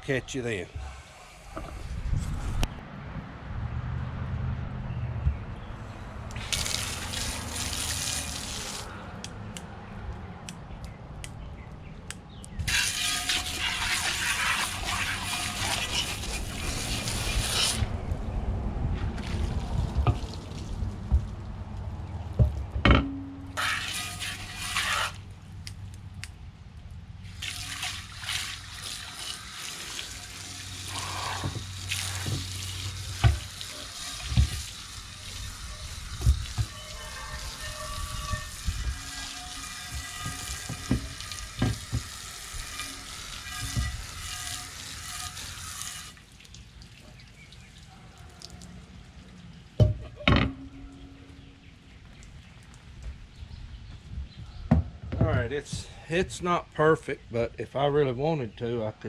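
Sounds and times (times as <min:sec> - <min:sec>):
hose nozzle spraying water: 0:06.3 - 0:08.9, 0:12.7 - 0:17.9, 0:23.6 - 0:25.2, 0:27.3 - 0:46.2
water splashing onto deck boards: 0:06.3 - 0:08.9, 0:12.7 - 0:17.9, 0:19.1 - 0:21.7, 0:27.2 - 0:35.5, 0:39.0 - 0:49.7
sharp knocks of pot: 0:49.8 - 0:51.2.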